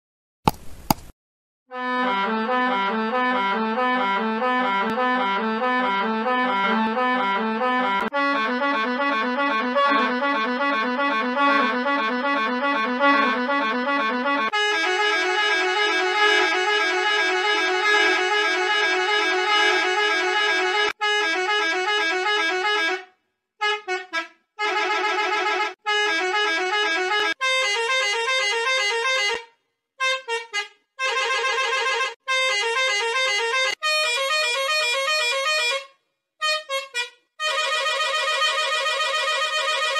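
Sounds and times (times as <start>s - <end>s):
bus horn blasts: 14.6s - 23.0s, 23.6s - 27.4s.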